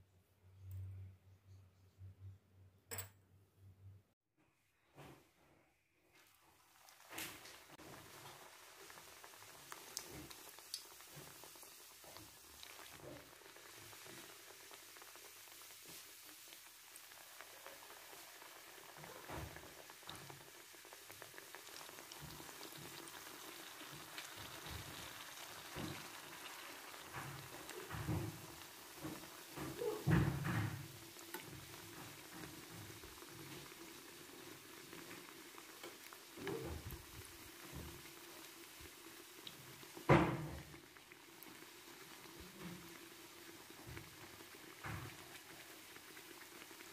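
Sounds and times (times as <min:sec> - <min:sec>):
dough frying in hot oil: 0:06.0 - 0:46.9
kitchen thumps and knocks: 0:27.9 - 0:30.9.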